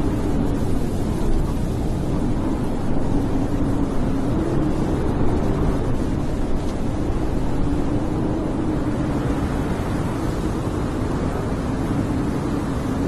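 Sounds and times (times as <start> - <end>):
blizzard wind howling: 0.0 - 13.0.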